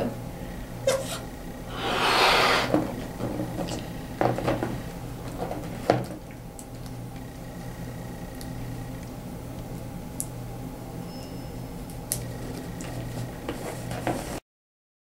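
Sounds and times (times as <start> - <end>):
breath blowing into balloon: 1.7 - 2.8.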